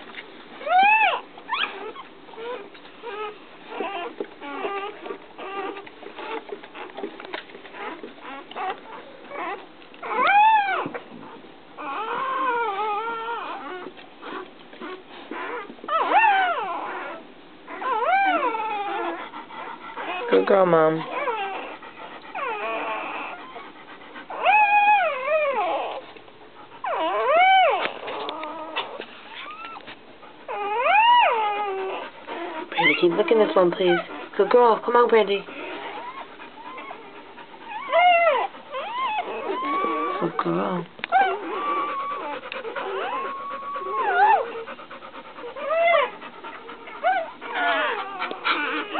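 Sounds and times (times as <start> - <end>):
dog panting: 0.0 - 48.9
newborn puppy crying: 0.1 - 48.9.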